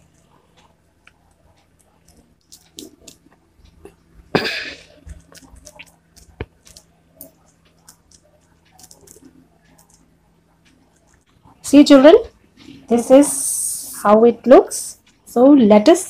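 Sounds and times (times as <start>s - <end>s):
plastic crinkling: 5.0s - 10.0s.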